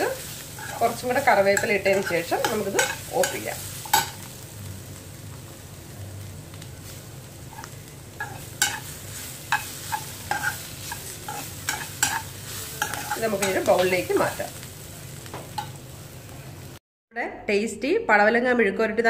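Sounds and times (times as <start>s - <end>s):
food sizzling in a pan: 0.0s - 16.8s
spoon clinking and scraping pan: 0.2s - 4.3s, 7.5s - 14.1s, 15.5s - 15.8s.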